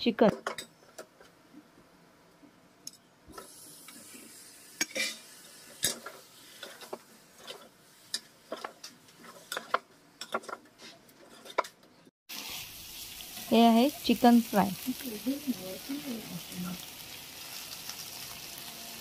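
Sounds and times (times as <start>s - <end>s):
chicken sizzling in a pot: 3.3s - 9.8s, 12.3s - 19.0s.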